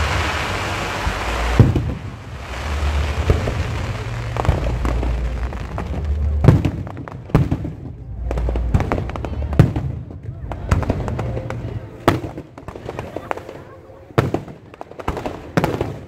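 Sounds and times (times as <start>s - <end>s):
low rumble: 0.0s - 12.1s
fireworks bangs: 0.0s - 16.0s.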